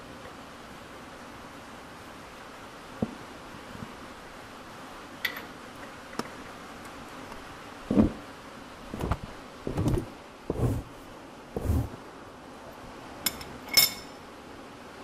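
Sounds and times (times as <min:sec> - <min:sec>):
rain on a tin roof: 0:00.0 - 0:09.0.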